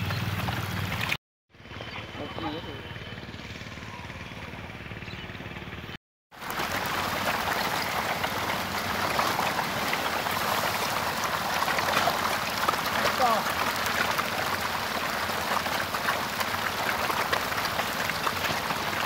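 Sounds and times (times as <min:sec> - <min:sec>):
fish splashing at water surface: 0:06.4 - 0:19.0.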